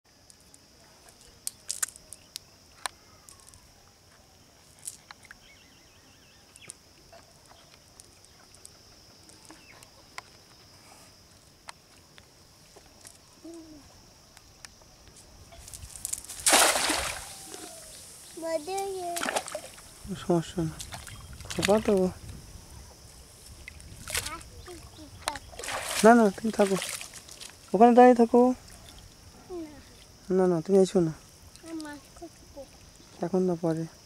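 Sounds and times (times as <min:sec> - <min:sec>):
steady high-pitched hiss: 0:00.1 - 0:34.0
net splashing into pond: 0:15.7 - 0:19.9, 0:23.6 - 0:24.4, 0:25.4 - 0:27.5.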